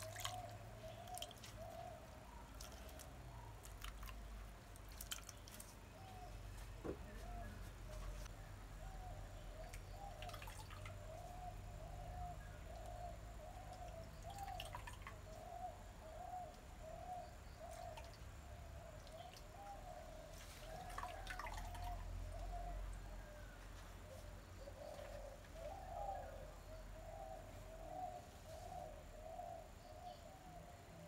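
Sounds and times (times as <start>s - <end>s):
liquid dripping and trickling: 0.0s - 1.6s, 2.4s - 5.8s, 9.7s - 11.2s, 13.7s - 15.4s, 18.9s - 19.8s, 20.6s - 22.5s.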